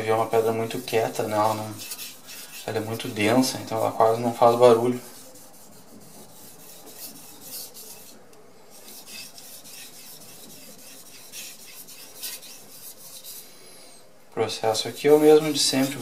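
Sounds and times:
knife scraping on whetstone: 1.3 - 4.6, 5.4 - 13.4.

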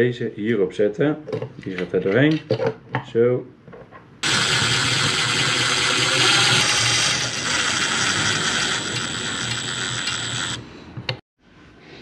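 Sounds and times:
electric screwdriver whining: 4.2 - 10.7.

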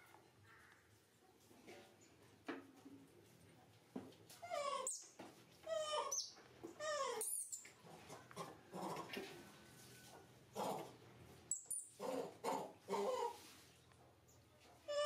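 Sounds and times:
baby monkey crying: 4.4 - 5.0, 5.7 - 6.2, 6.8 - 7.3.

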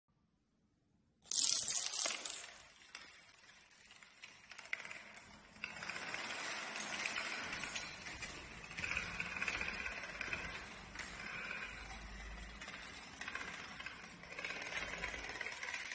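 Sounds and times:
playing cards clattering down: 1.3 - 2.7.

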